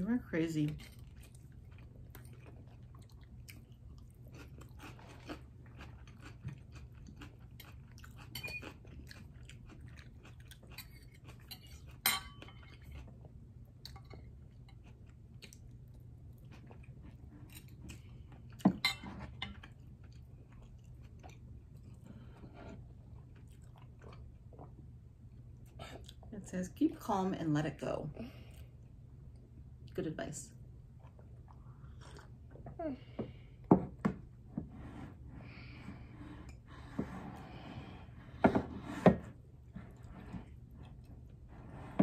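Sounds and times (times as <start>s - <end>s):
chewing and mouth sounds: 0.8s - 18.7s, 19.5s - 22.1s, 23.0s - 26.3s, 30.9s - 32.7s.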